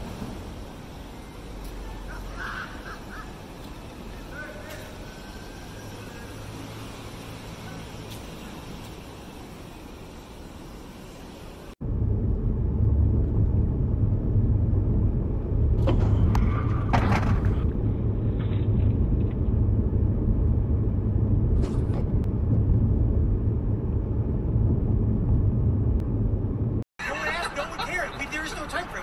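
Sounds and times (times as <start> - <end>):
pickup truck rumbling: 11.8 - 26.8.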